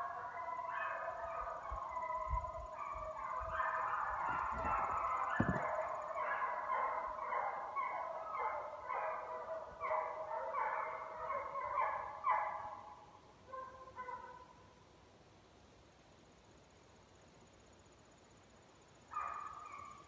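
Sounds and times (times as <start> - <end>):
hounds baying in chorus: 0.0 - 14.6, 19.1 - 20.0.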